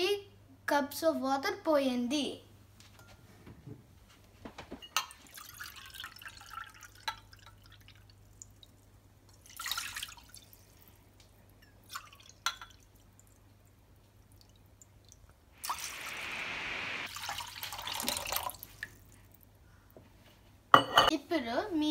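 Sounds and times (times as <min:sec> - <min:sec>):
water splashing into a pan: 0:09.3 - 0:10.6, 0:15.6 - 0:19.0.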